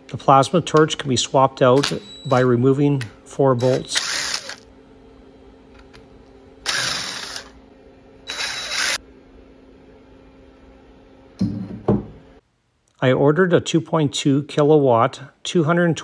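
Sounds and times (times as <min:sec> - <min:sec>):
impact driver bursts: 0:03.6 - 0:04.6, 0:06.7 - 0:07.5, 0:08.3 - 0:09.0.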